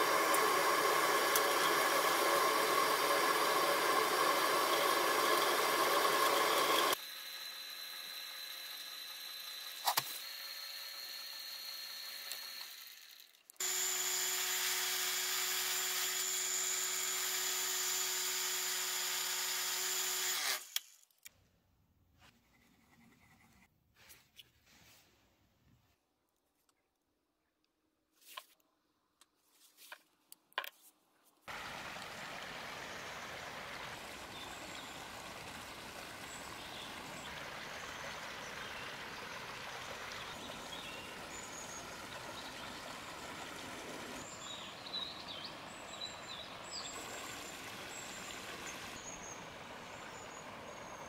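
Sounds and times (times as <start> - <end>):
lathe motor whine: 0.0 - 20.6
gouge cutting resin on lathe: 0.0 - 20.8
small handling sounds: 20.7 - 31.5.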